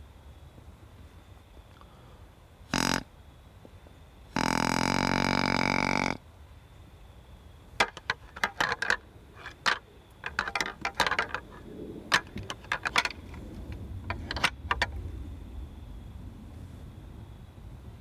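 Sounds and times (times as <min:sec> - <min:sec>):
deer antlers clacking together: 0:07.8 - 0:15.0.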